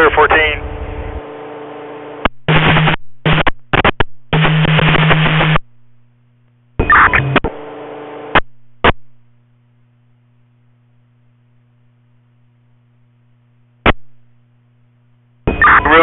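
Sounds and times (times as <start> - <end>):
radio static bursts: 0.0 - 1.2, 2.2 - 5.6, 6.8 - 9.0, 15.6 - 16.0
steady electrical hum: 0.0 - 16.0.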